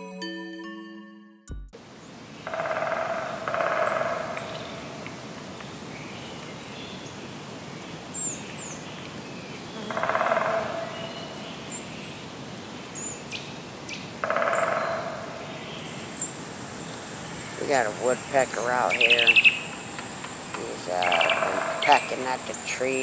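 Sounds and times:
woodpecker drumming: 2.4 - 8.9, 9.6 - 12.0, 13.0 - 23.0
high bird chirps: 18.4 - 22.6.

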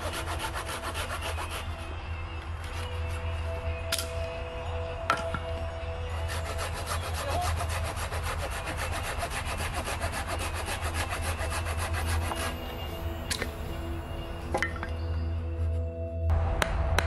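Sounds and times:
pruning saw cutting wood: 0.0 - 1.9, 6.2 - 13.5.

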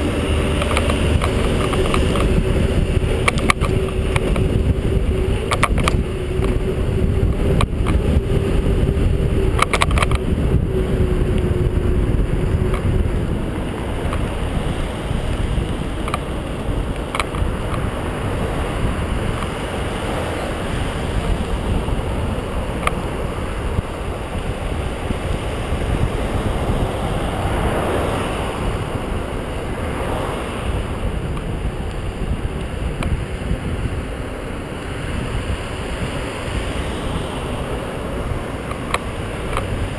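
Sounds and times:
bike rolling over pavement: 0.0 - 39.9
wind on microphone: 0.0 - 39.9
bike clicks and rattles: 0.3 - 10.6, 12.5 - 19.6, 21.2 - 23.2.

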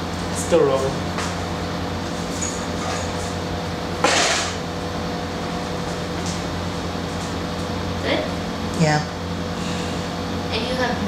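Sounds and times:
electrical hum: 0.0 - 11.0.

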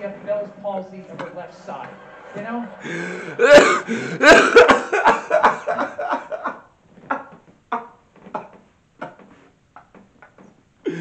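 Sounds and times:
man laughing hard: 2.7 - 9.3.

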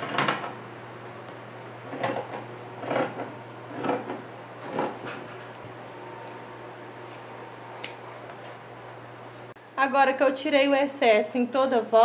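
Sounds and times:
scissors rasping cuts: 1.9 - 5.0, 7.0 - 8.2.

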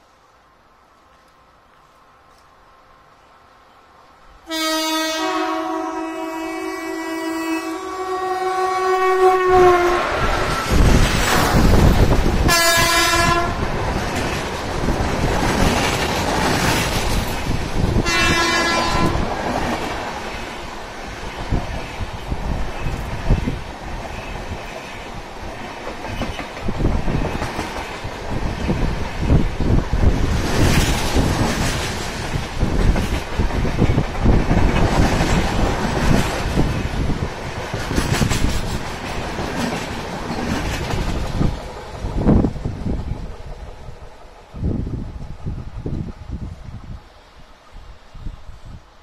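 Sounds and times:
train coaches rumbling past: 0.0 - 49.0
locomotive horn blasts: 4.5 - 10.1, 12.5 - 13.6, 18.0 - 19.2.

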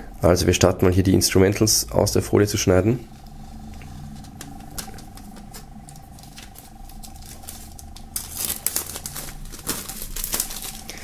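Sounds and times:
plastic film crinkling: 4.1 - 11.0.

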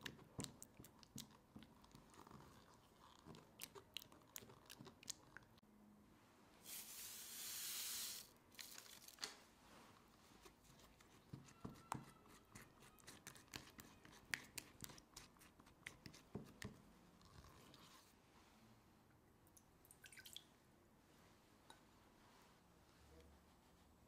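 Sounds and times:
spatula stirring thick batter: 0.0 - 5.6, 10.0 - 18.2.

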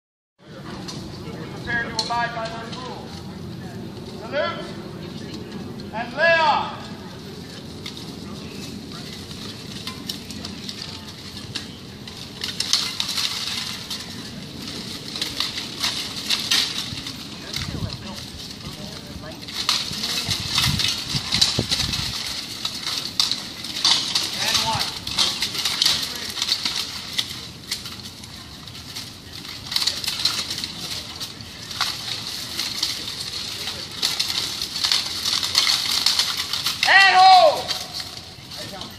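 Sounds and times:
metal weapons and armour clanking: 8.4 - 38.9.

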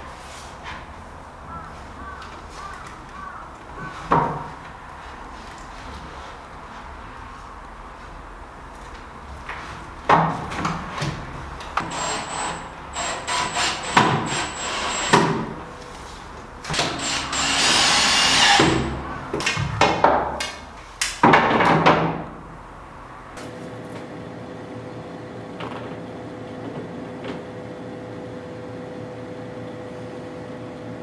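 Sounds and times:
cordless drill driving screws: 11.8 - 15.4, 16.8 - 18.9.

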